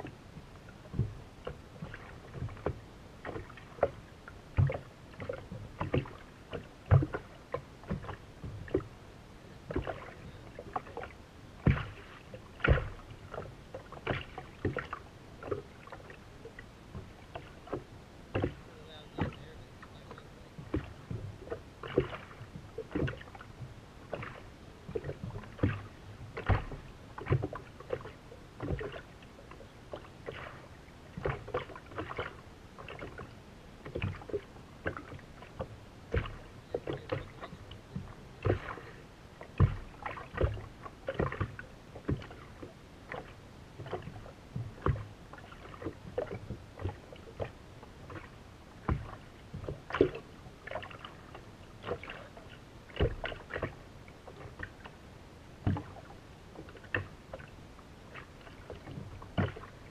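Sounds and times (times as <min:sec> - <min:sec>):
waves slapping against boat hull: 0:00.0 - 0:59.9.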